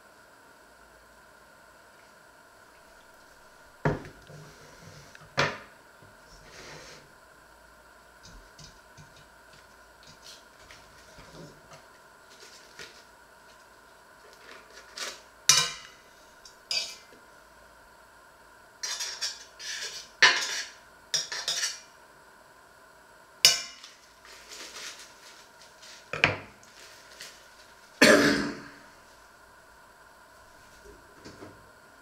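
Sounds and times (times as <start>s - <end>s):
metal utensil scraping a stockpot: 18.8s - 21.8s.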